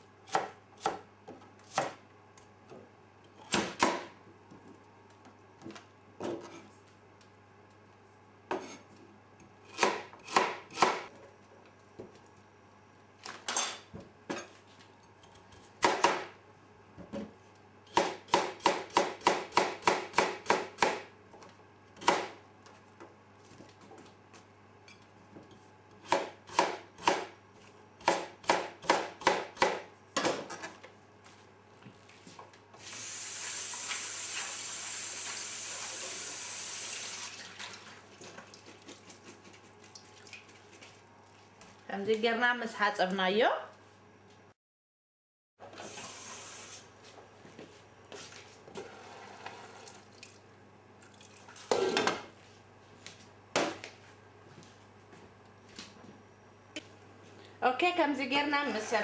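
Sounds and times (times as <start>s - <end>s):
knife chopping on cutting board: 0.3s - 2.0s, 3.4s - 4.1s, 9.7s - 11.1s, 15.6s - 16.3s, 17.9s - 21.0s, 26.0s - 27.3s, 28.0s - 30.4s.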